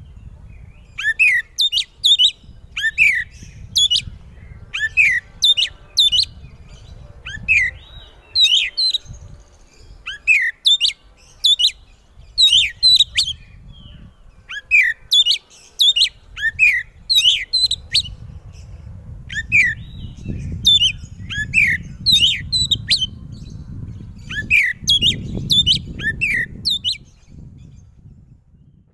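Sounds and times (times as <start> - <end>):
bird singing whistled phrases: 0.6 - 4.1, 10.0 - 11.8, 12.4 - 18.2, 19.3 - 23.2, 24.3 - 27.2
low rumble: 17.8 - 28.9.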